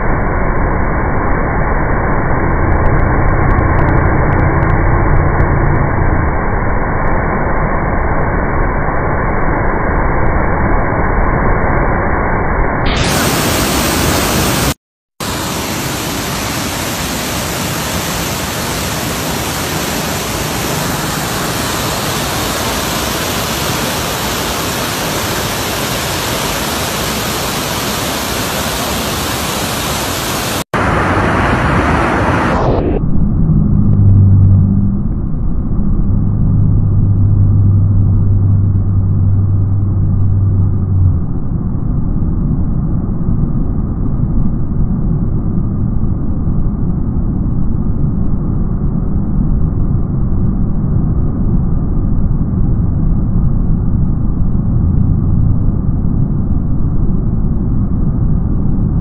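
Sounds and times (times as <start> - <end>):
river in flood rushing: 13.0 - 32.7.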